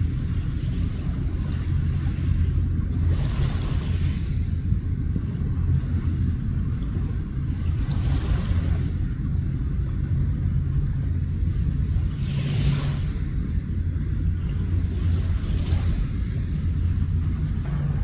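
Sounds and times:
steady low rumble: 0:00.0 - 0:18.0
waves washing against rocks: 0:11.6 - 0:18.0.

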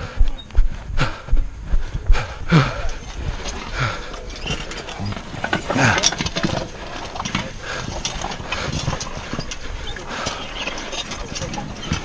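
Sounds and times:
man breathing hard: 0:00.0 - 0:04.5, 0:06.8 - 0:10.9.

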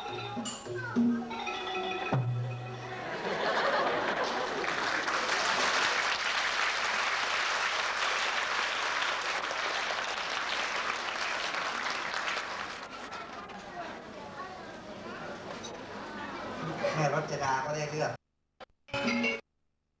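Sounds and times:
audience applauding: 0:03.2 - 0:13.8.

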